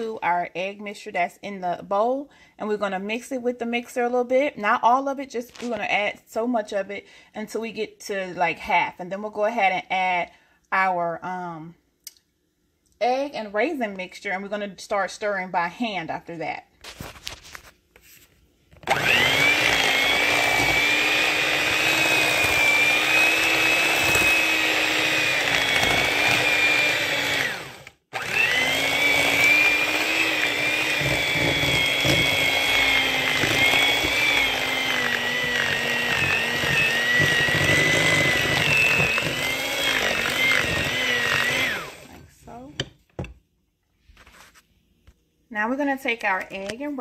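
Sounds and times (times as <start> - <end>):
electric hand mixer whining: 18.8 - 42.2.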